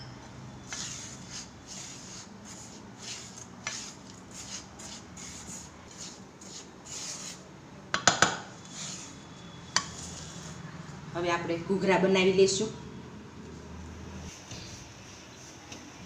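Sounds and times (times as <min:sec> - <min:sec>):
spatula scraping dry mix in pan: 0:00.7 - 0:07.4, 0:08.6 - 0:10.6.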